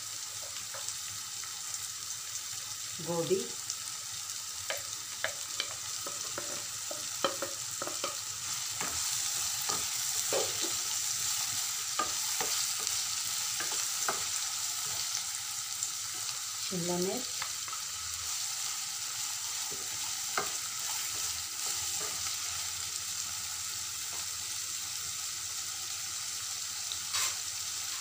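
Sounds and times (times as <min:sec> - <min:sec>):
vegetables sizzling in oil: 0:00.0 - 0:28.0
spatula scraping a pan: 0:05.6 - 0:15.2, 0:27.1 - 0:28.0.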